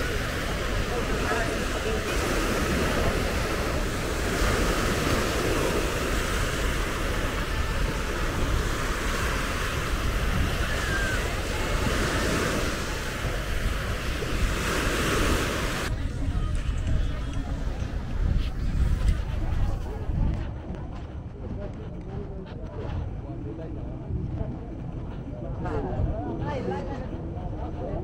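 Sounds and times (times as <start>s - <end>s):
sea waves washing onto beach: 0.0s - 19.8s
wind rumbling on microphone: 0.0s - 28.0s.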